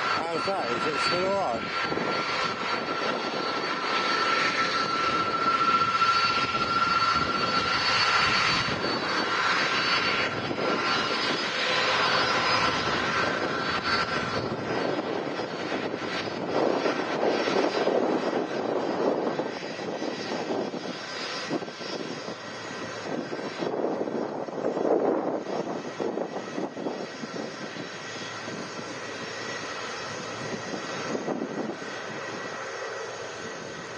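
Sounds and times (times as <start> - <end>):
thin high whine: 0.0 - 10.1
jet engine roar: 0.0 - 33.9.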